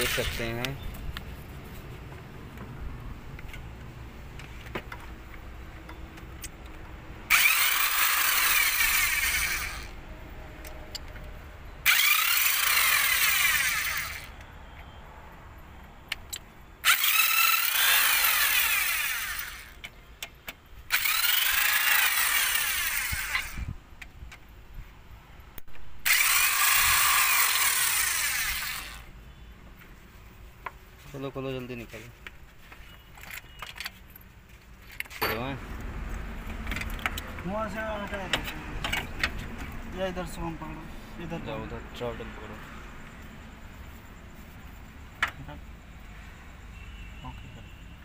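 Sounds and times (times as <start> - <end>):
power tool whirring: 0.0 - 0.5, 7.2 - 10.0, 11.8 - 14.4, 16.8 - 19.8, 20.9 - 23.7, 26.0 - 29.1.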